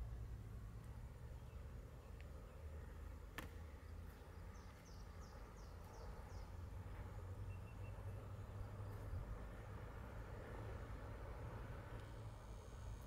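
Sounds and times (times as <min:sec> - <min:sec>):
distant diesel locomotive rumble: 0:00.0 - 0:13.0
bird chirping: 0:03.8 - 0:06.6, 0:07.4 - 0:09.2.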